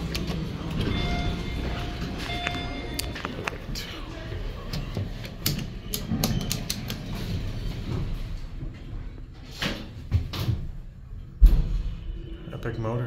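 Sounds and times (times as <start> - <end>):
elevator machinery humming: 0.0 - 9.6.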